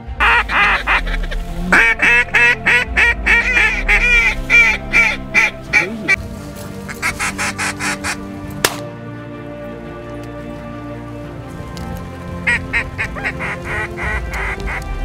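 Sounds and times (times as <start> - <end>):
duck call quacks: 0.0 - 6.2, 6.9 - 8.2, 12.5 - 15.0
background music: 0.0 - 15.0.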